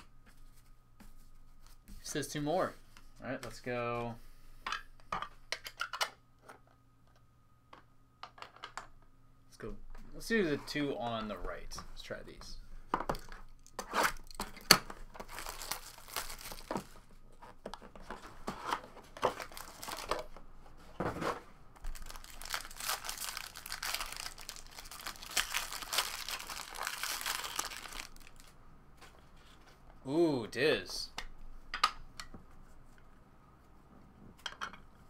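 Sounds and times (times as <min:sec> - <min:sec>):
foil wrapper crinkling: 0:14.2 - 0:17.0, 0:19.3 - 0:20.3, 0:21.8 - 0:28.5.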